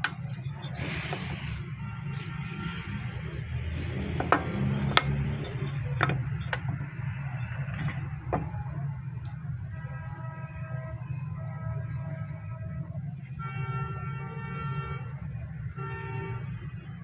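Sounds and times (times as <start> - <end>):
wood pieces clacking on metal table: 0.0 - 1.6, 3.7 - 6.9.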